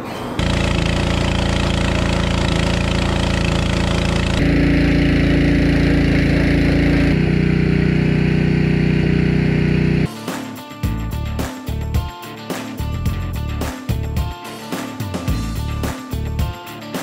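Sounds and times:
pressure washer engine running: 0.4s - 10.1s.

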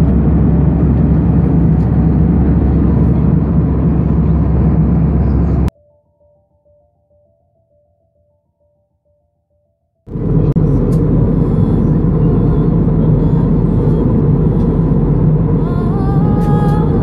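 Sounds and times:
jet engine cabin rumble: 0.0s - 5.7s, 10.1s - 17.0s.

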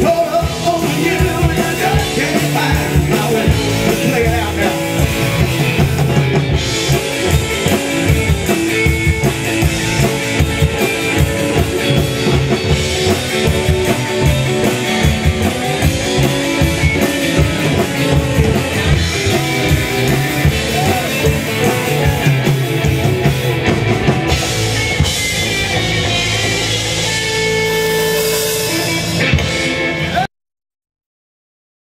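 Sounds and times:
rockabilly band playing live: 0.0s - 30.3s.

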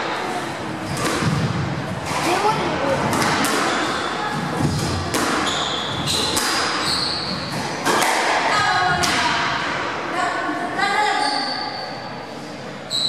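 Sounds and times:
squash ball cracking off walls: 0.9s - 3.8s, 4.5s - 6.8s
shoes squeaking on wooden floor: 5.4s - 7.6s.

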